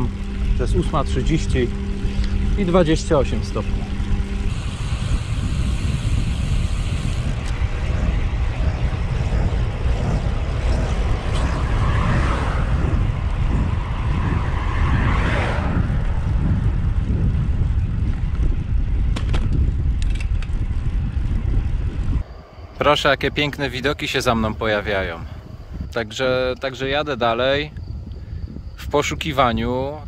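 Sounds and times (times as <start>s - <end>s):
rushing sound: 0.0s - 17.1s
wind buffeting microphone: 0.0s - 30.0s.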